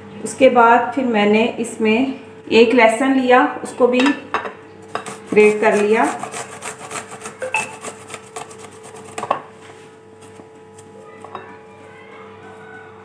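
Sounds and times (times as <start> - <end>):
garlic rasping on a metal grater: 4.9 - 9.3.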